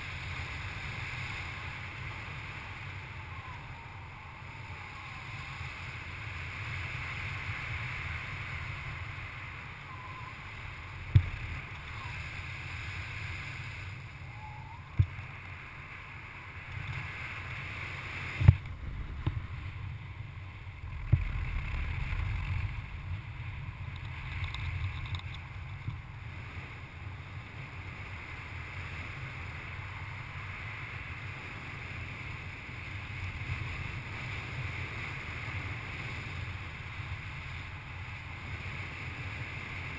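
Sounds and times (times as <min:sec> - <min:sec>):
wind rumble on microphone: 0:00.0 - 0:39.9.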